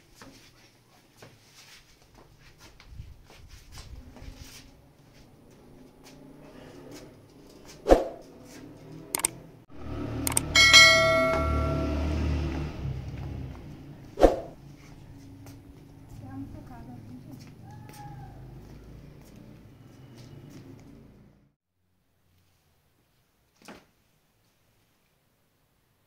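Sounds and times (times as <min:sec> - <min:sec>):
notification bell chime: 0:10.3 - 0:12.4.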